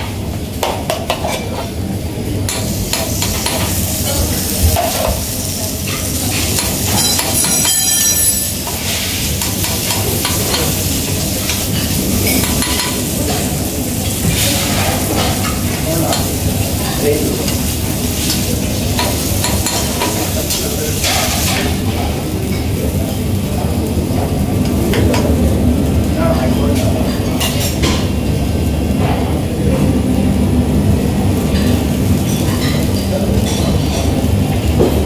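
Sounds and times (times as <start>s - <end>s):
batter sizzling on griddle: 0.0s - 35.0s
spatula scraping and tapping metal: 0.6s - 1.7s.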